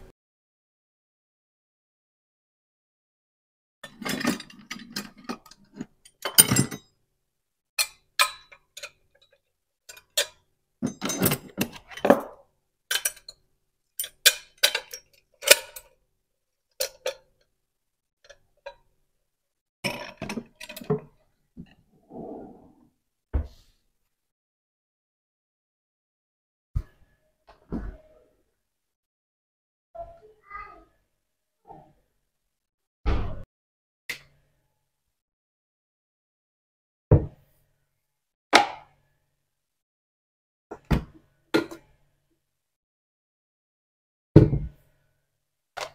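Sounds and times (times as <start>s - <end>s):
glass and metal cups clinking: 3.8s - 6.9s, 7.8s - 13.4s, 14.0s - 15.9s, 16.8s - 17.3s.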